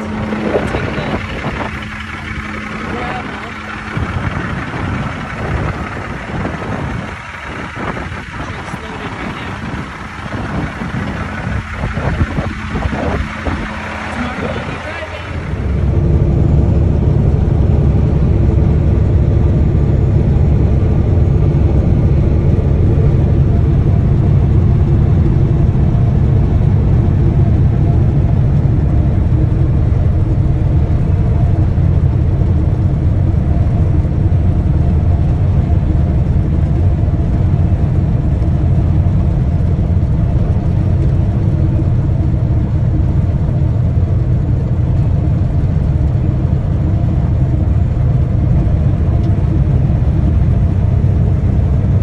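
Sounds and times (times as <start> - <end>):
truck engine and tyres droning: 0.0 - 52.0.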